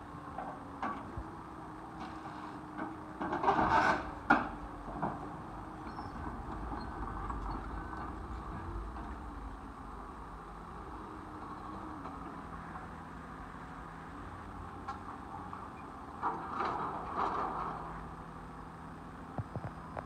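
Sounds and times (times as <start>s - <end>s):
diesel engine running: 0.0s - 20.0s
demolition grab crunching building: 3.3s - 11.8s.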